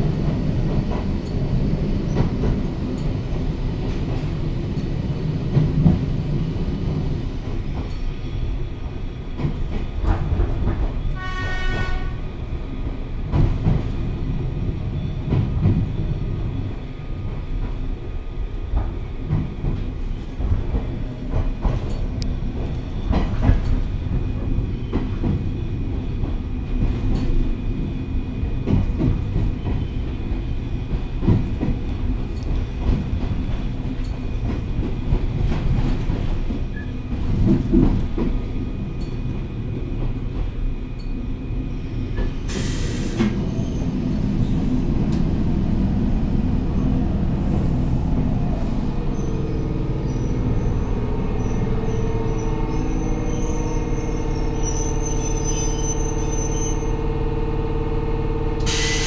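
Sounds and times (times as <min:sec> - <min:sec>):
rail joint clicks: 0:00.0 - 0:59.0
train wheels rumbling: 0:00.0 - 0:59.0
air hiss: 0:42.5 - 0:43.4, 0:58.7 - 0:59.0.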